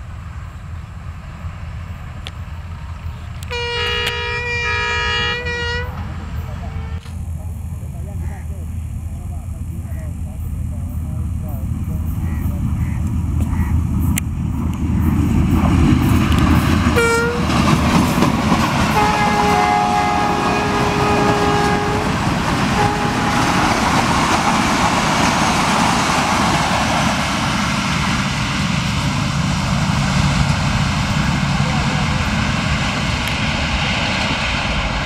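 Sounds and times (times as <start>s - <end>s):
train passing with rushing wheels: 0.0s - 35.0s
train horn blasts: 3.4s - 7.1s, 16.9s - 17.7s, 18.8s - 24.1s.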